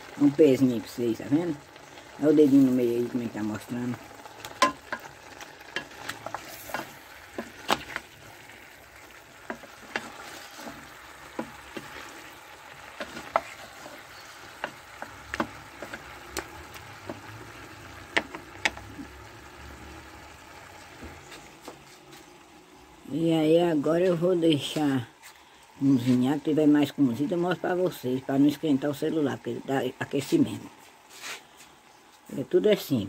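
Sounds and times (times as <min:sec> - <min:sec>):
chicken sizzling in a pan: 0:00.0 - 0:23.4.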